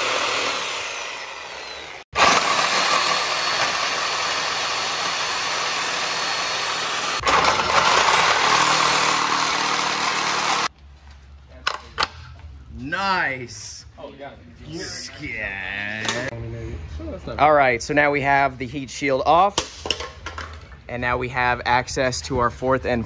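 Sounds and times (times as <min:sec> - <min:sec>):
angle grinder cutting sheet metal: 0:00.0 - 0:10.7.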